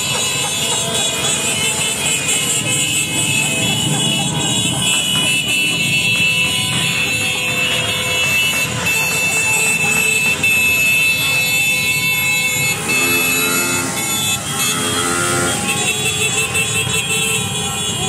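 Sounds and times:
car and motorcycle engines: 0.0s - 18.0s
car horns: 0.0s - 18.0s
long horn blast: 11.7s - 18.0s.

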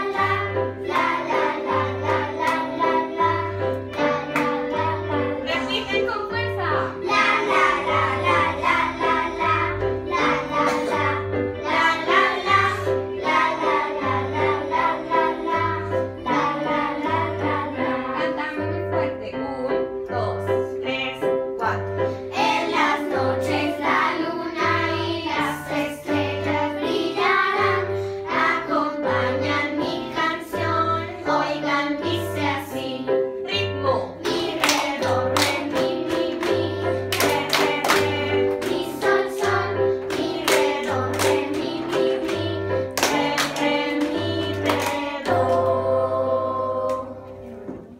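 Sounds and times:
children singing: 0.0s - 5.4s, 6.9s - 18.3s, 22.3s - 33.2s, 34.1s - 47.5s
electronic keyboard accompaniment: 0.0s - 47.9s
children clapping in time: 34.2s - 45.3s.

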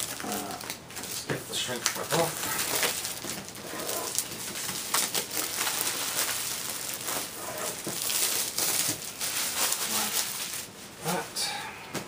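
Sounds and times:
plastic shrink wrap tearing: 0.0s - 10.7s
plastic wrap crumpled crinkling: 0.0s - 10.8s.

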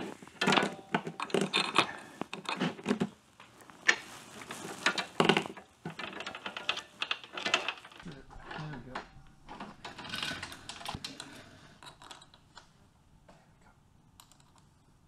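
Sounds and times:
metal chain clinking and rattling: 4.6s - 12.4s.

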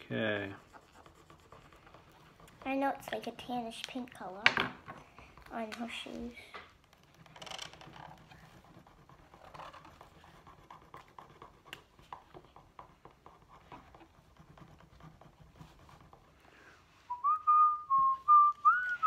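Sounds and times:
markers scratching on paper: 0.2s - 3.9s, 5.5s - 16.4s.

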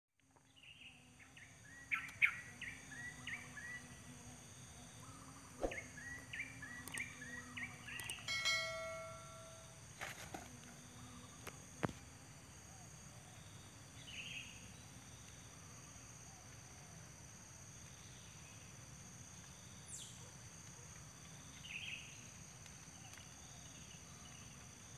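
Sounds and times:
nestlings begging chirps: 5.1s - 8.3s
sharp clicks: 6.8s - 7.1s, 7.9s - 8.3s.

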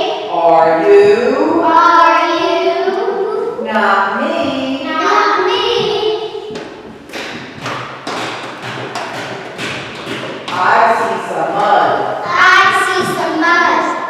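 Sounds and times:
girls singing together: 1.0s - 6.7s
stamps on a hard floor: 6.6s - 10.7s.

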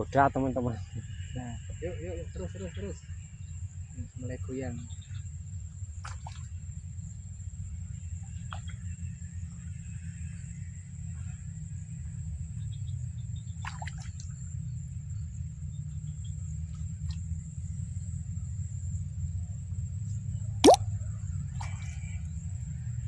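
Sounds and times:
light plops on water: 6.0s - 6.5s, 13.6s - 14.2s.

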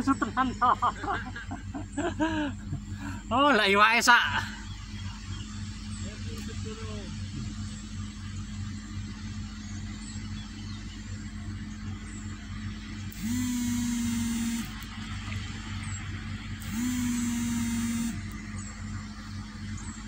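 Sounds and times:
steady low hum: 0.0s - 20.0s
small motor whining: 11.9s - 20.0s.

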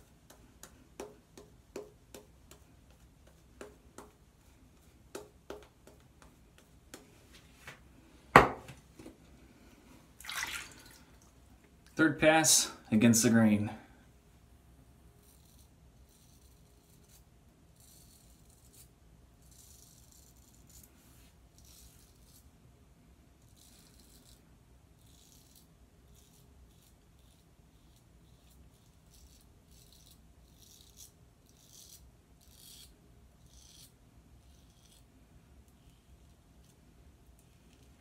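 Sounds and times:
razor scraping stubble: 25.0s - 35.1s.

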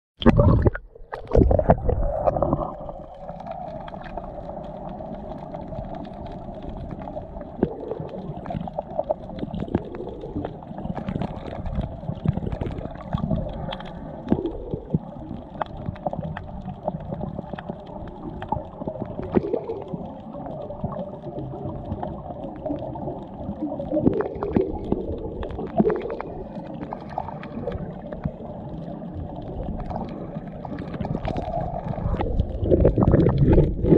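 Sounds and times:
underwater clicks and crackles: 0.2s - 33.9s
underwater rumble: 0.2s - 33.9s.

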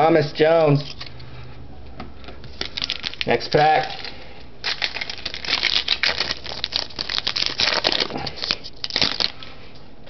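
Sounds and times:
card pack wrapper tearing and crinkling: 2.5s - 9.4s.

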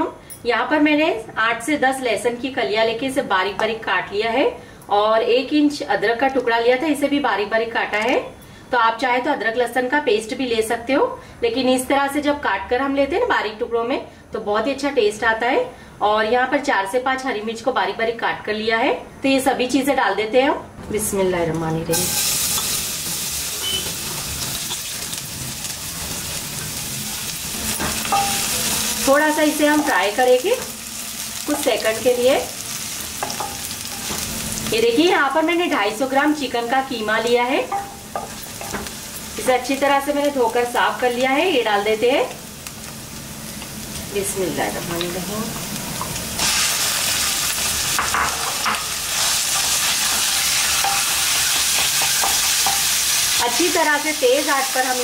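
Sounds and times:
vegetables sizzling in hot oil: 21.9s - 55.0s.

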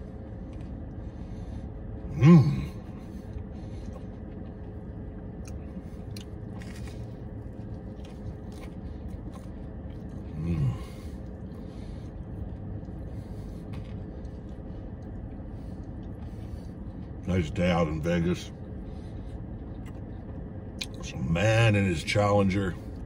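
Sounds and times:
man chewing food: 0.0s - 17.6s, 18.3s - 21.2s
steady low hum: 0.0s - 23.0s
man humming mm: 2.1s - 2.9s.

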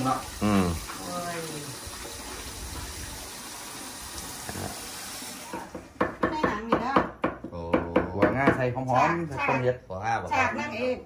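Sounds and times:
tap water running into sink: 0.0s - 6.9s
pestle pounding in mortar: 5.5s - 8.8s.

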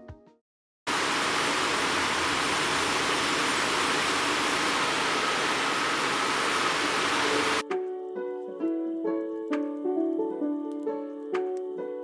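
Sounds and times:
churning sea water rushing: 0.9s - 7.6s.

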